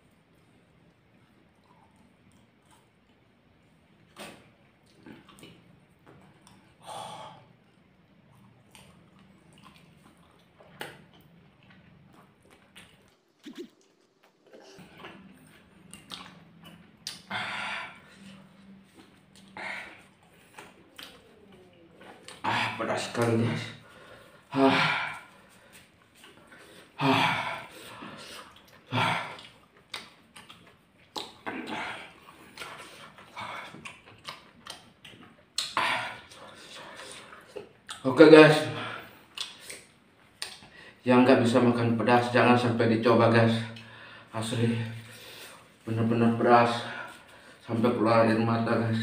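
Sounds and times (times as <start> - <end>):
wet chewing and mouth noises: 0.0 - 6.8, 7.5 - 17.3, 18.0 - 22.4, 25.1 - 27.0, 27.6 - 38.2, 39.0 - 40.8
man groaning breathily: 24.5 - 25.3, 27.0 - 28.1.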